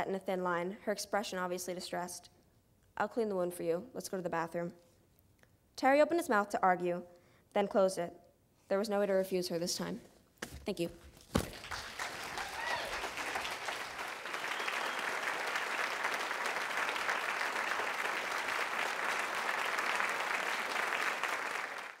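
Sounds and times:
audience applauding: 11.5 - 22.0.

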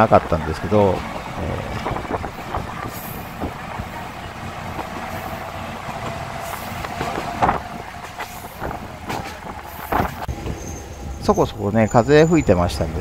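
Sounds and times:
diesel railcar rumbling: 0.0 - 13.0
wheels knocking over rail joints: 0.5 - 10.6.

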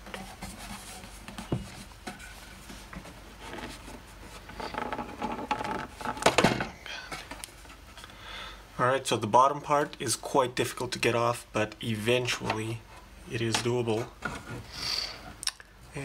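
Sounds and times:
case creaking: 4.4 - 6.8.

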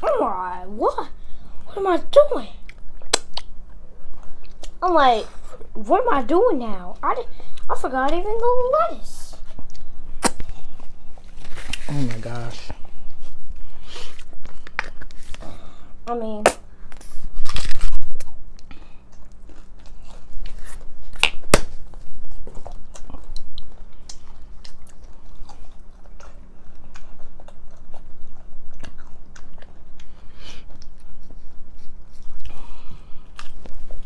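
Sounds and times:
crunchy food being chewed: 17.0 - 34.0.

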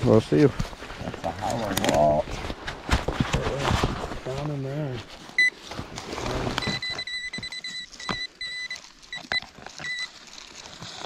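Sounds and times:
metal detector beeping: 5.4 - 5.6, 6.5 - 10.2.

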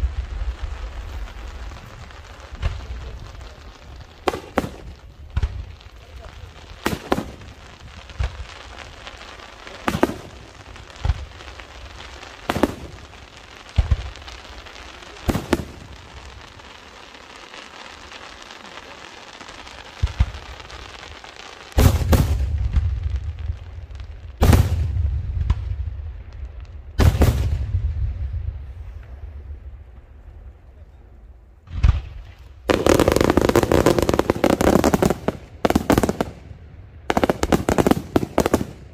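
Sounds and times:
heavy booms with rumbling echo: 21.8 - 29.9, 31.6 - 32.4
firework shells bursting: 31.7 - 36.4.

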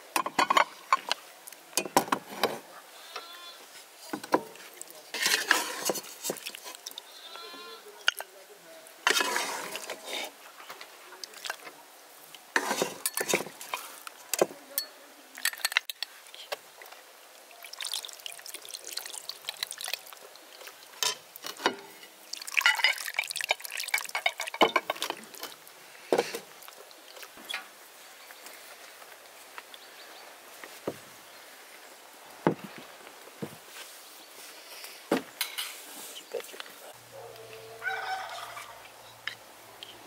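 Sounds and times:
broth pouring and splashing: 4.0 - 7.2, 9.0 - 10.3, 15.3 - 28.0.

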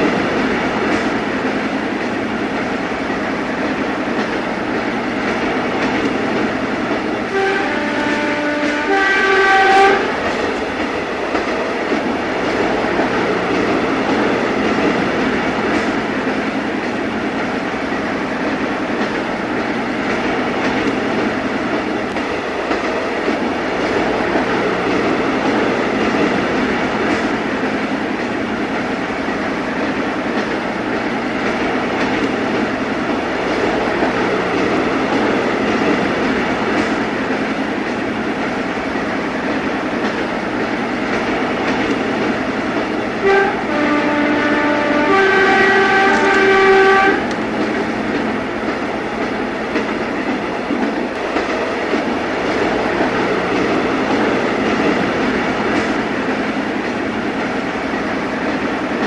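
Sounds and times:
train rumbling on rails: 0.0 - 59.0
train horn: 7.2 - 10.2, 43.2 - 47.4.

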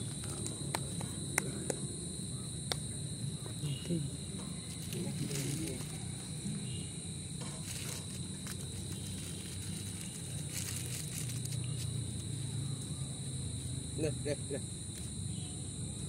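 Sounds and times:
high-pitched insect chorus: 0.0 - 16.0
faint rustles: 7.4 - 13.0.

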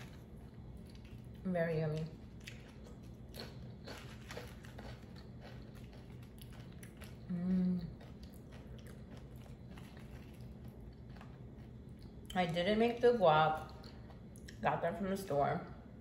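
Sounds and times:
crunching tortilla chips: 0.0 - 1.4, 2.0 - 12.4
person humming: 7.3 - 7.9.

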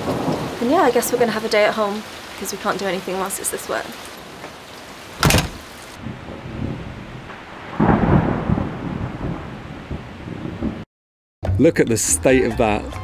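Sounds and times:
steady rain: 0.0 - 10.9
thunder peal: 5.2 - 10.9.

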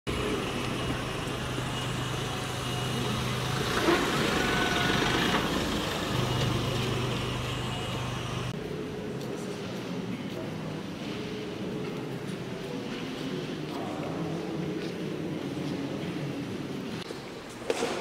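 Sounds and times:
vehicle engine running: 0.1 - 8.6
traffic noise: 0.1 - 9.8.

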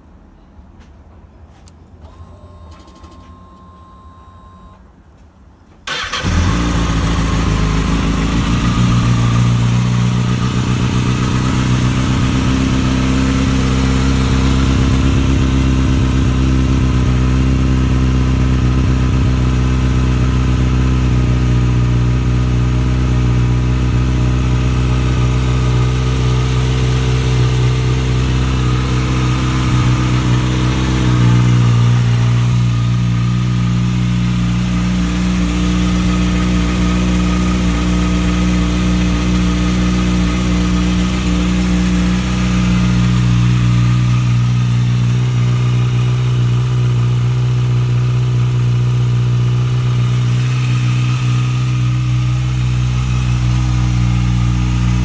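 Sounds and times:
motorcycle engine starting and idling: 5.8 - 55.0.

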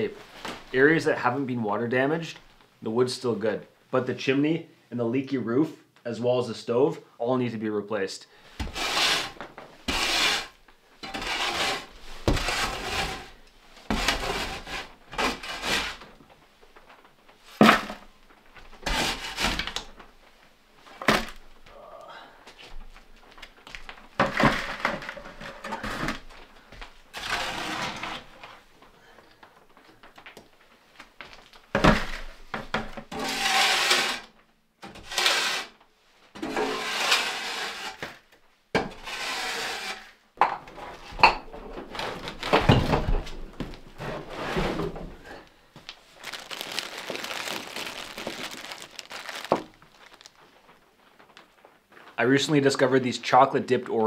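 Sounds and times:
shovel scraping metal stove: 8.7 - 16.0, 27.1 - 28.3, 33.1 - 34.3, 34.9 - 35.7, 36.4 - 38.0, 38.9 - 40.2
plastic wrapping rustling: 22.5 - 32.5, 41.8 - 52.6.

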